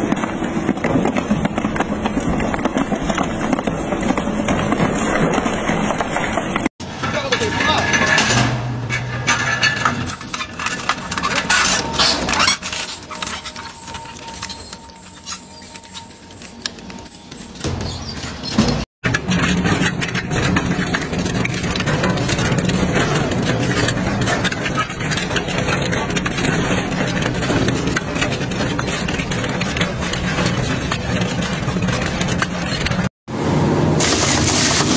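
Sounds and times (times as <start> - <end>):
shredder tearing metal: 7.3 - 16.2, 33.9 - 34.9
shredder grinding steel tubing: 9.5 - 17.7
high metallic squeal: 9.6 - 18.8.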